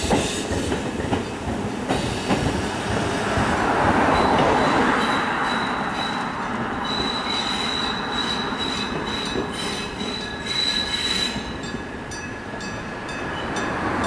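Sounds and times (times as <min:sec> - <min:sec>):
train wheels squealing: 0:04.1 - 0:11.8.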